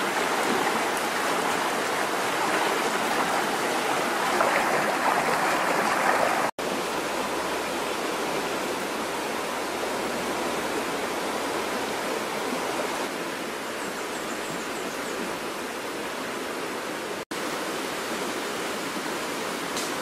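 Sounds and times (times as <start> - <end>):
river rushing: 0.0 - 13.8.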